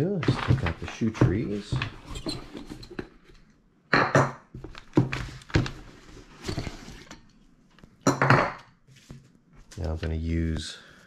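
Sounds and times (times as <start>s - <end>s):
boots rustling on paper: 0.2s - 2.0s.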